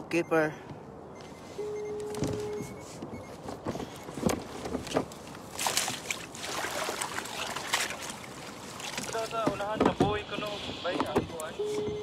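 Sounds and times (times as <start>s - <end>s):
water splashing against hull: 4.4s - 10.8s.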